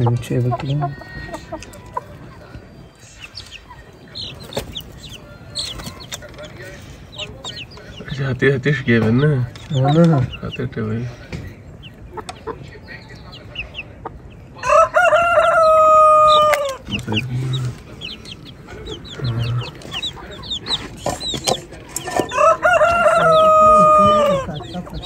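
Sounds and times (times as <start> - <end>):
chicks peeping: 0.0 - 25.0
rooster crowing: 14.6 - 16.8, 22.2 - 24.8.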